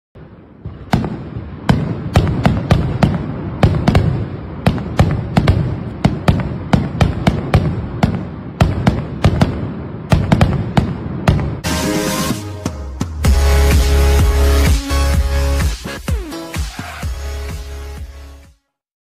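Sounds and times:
fireworks bangs: 0.2s - 12.4s.

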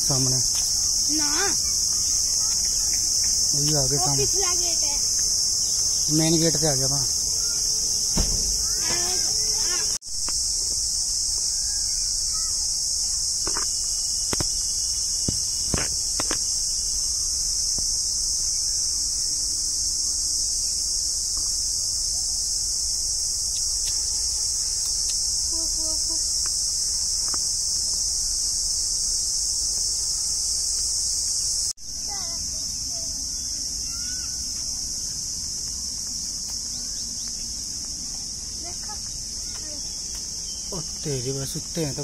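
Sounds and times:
insect chorus drone: 0.0s - 42.0s.

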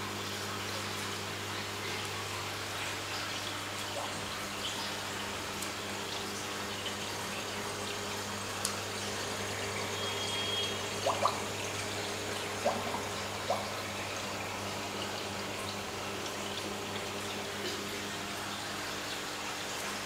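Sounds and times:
aquarium water hissing: 0.0s - 20.0s
water plops: 10.4s - 14.2s.

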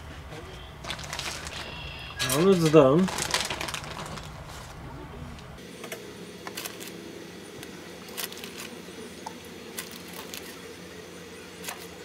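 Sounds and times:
steady low hum: 0.0s - 12.0s
plastic bag crinkling: 0.8s - 4.8s, 8.1s - 8.8s, 9.7s - 10.6s.

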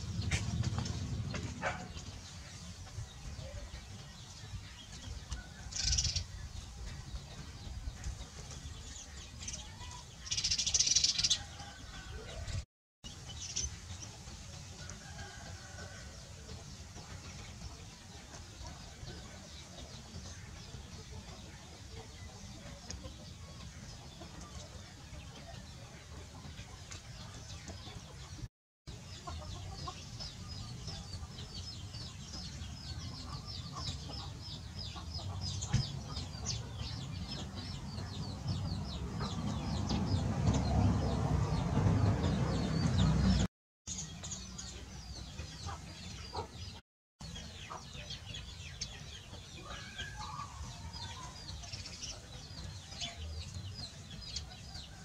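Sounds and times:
low rumble: 0.0s - 3.8s
chickens clucking: 0.0s - 12.6s, 13.5s - 43.5s, 44.1s - 55.0s.

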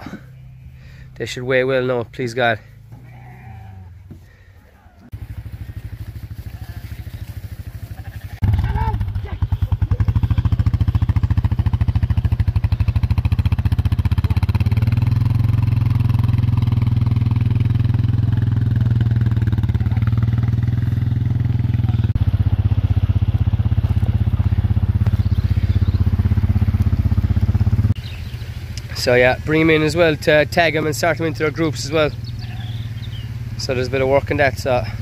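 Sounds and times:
quad bike engine running: 5.1s - 35.0s.

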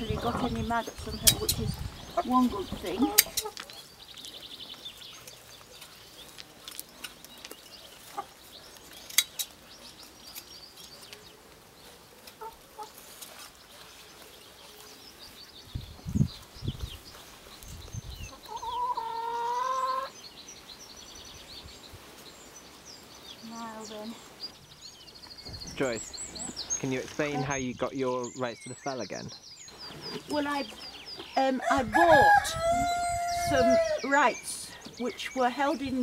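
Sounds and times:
small birds chirping: 0.0s - 36.0s
dull low thumps: 15.7s - 17.0s, 25.4s - 27.9s.

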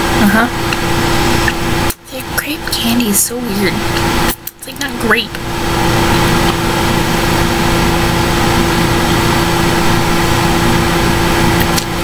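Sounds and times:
electronic hum and hiss: 0.0s - 12.0s.

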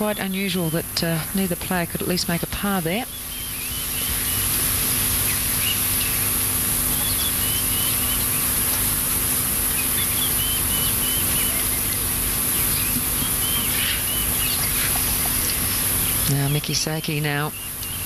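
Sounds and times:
faint low hum: 0.0s - 18.0s
small birds chirping: 0.0s - 18.0s
steady high hiss: 0.0s - 18.0s.

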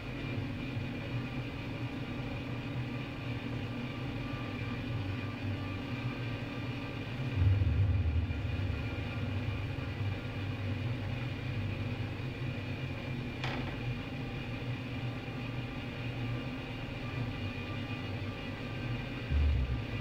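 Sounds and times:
computer cooling fans humming: 0.0s - 20.0s
low rumble: 7.3s - 11.5s.

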